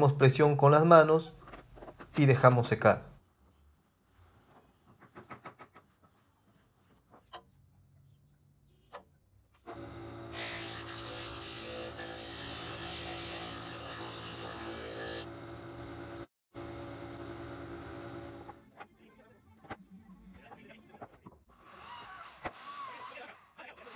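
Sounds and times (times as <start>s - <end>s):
sanding drum motor hum: 9.7s - 18.5s.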